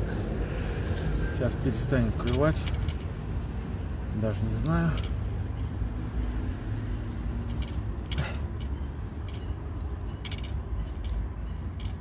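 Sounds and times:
rustles and clicks near microphone: 2.1s - 3.3s, 7.4s - 12.0s.

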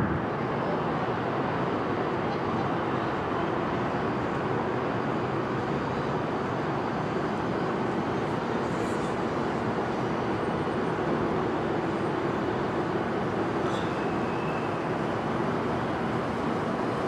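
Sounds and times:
city street traffic: 0.0s - 17.0s.

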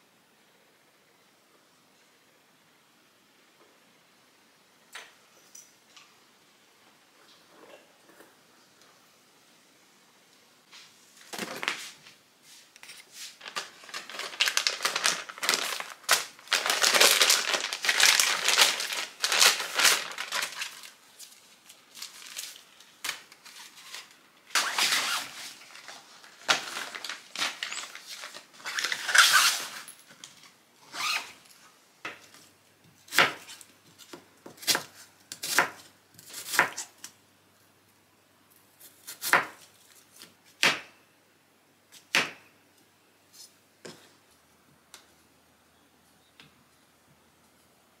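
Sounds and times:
plastic pouches and fabric rustling: 12.7s - 31.6s.

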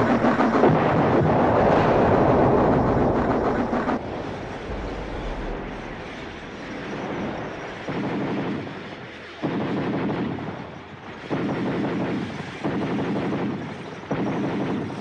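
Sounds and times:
battle noise rumble: 1.6s - 8.8s.

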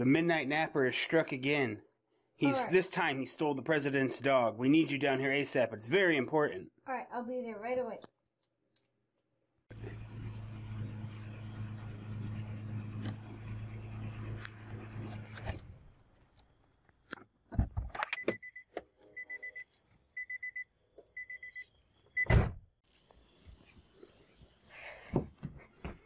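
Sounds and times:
car engine humming: 9.7s - 16.0s
clicks and thumps: 17.0s - 18.9s
car warning chime beeping: 18.2s - 22.3s
car door slam: 22.3s - 22.6s.

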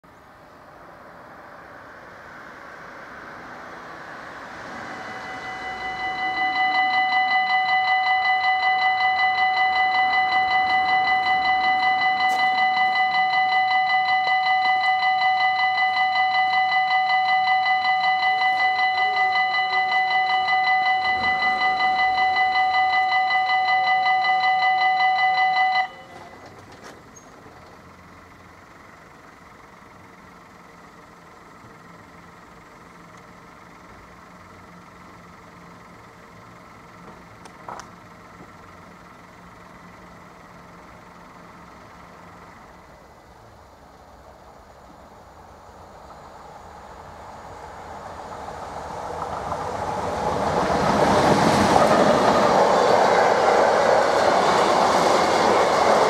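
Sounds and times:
level crossing warning bell: 4.2s - 26.9s.

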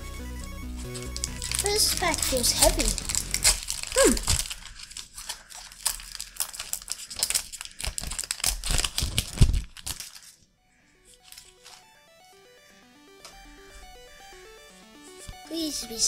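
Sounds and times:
plastic wrapper crinkling and tearing: 0.8s - 11.9s.

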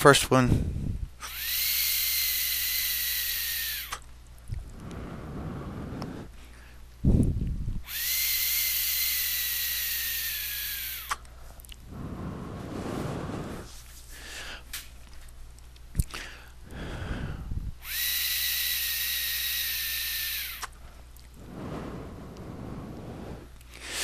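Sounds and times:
air drawn through vape tank: 1.2s - 6.4s, 7.1s - 13.7s, 16.0s - 24.0s
breathy exhales: 4.6s - 6.8s, 16.1s - 17.6s, 20.6s - 24.0s.

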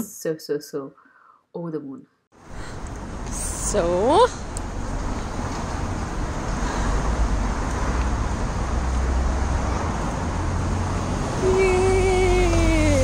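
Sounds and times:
city traffic rumble: 2.4s - 13.0s.

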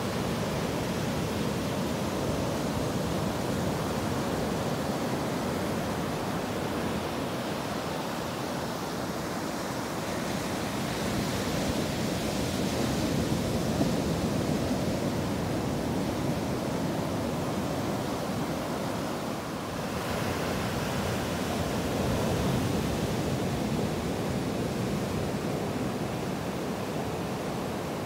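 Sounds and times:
ocean surf breaking on beach: 0.0s - 28.0s.

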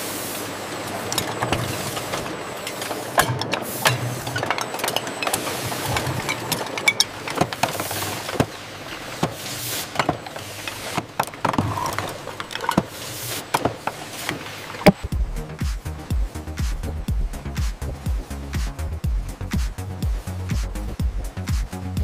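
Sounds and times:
machinery hissing: 0.0s - 21.9s
bottles clattering: 1.0s - 15.0s
electronic dance music: 14.9s - 22.0s.

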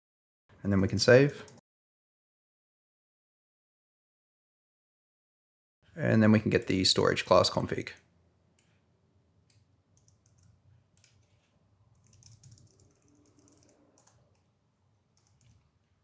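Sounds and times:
computer keyboard typing: 9.5s - 14.5s, 15.1s - 15.7s.

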